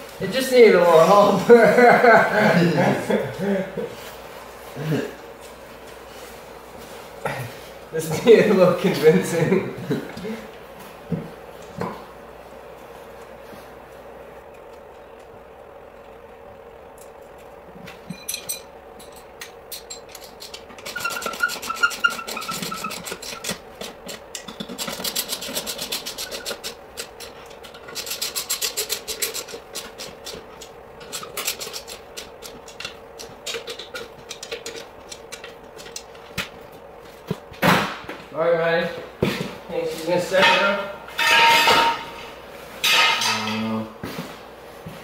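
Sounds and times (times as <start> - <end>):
short squeak: 20.8 - 23.1.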